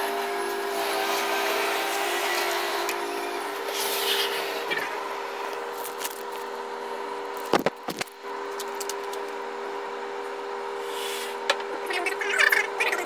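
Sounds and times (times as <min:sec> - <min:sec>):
excavator engine and hydraulics humming: 0:00.0 - 0:13.0
masonry crackling and crunching: 0:05.5 - 0:06.6.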